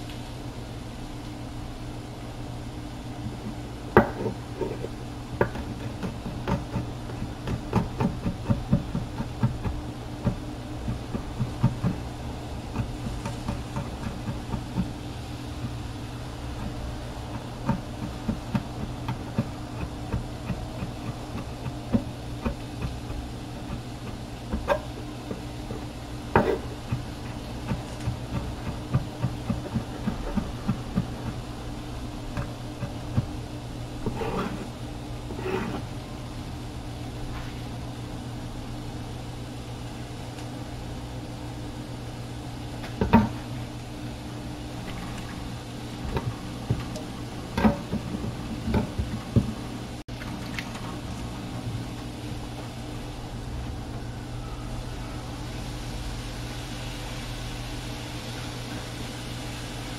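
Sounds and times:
steady low hum: 0.0 - 59.9
knife chopping on wooden board: 4.0 - 12.1, 12.7 - 15.0, 16.6 - 25.4, 26.4 - 31.4.

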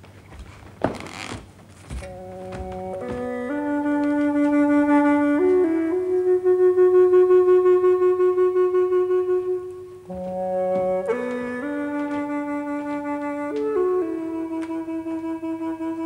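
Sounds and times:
solo flute slow melody: 2.0 - 16.0.

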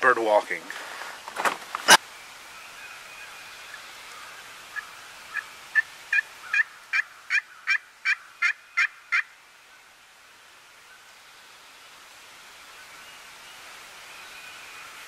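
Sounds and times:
wild turkey yelping: 2.6 - 9.3.

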